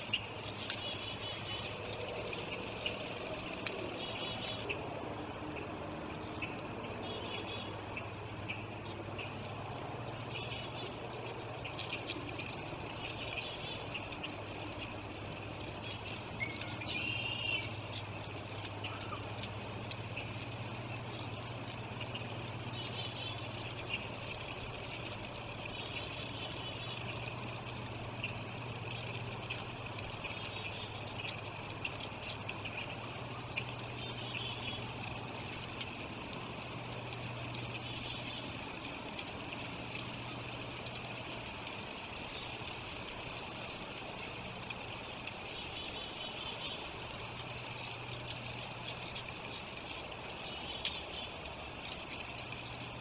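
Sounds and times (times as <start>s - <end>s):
flowing river water: 0.0s - 53.0s
steady low hum: 0.0s - 53.0s
faint high chirping calls: 15.7s - 35.5s.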